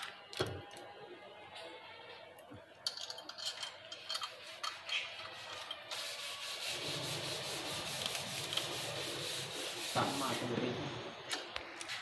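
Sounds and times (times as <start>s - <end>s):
rhythmic rubbing scraping: 3.4s - 11.1s.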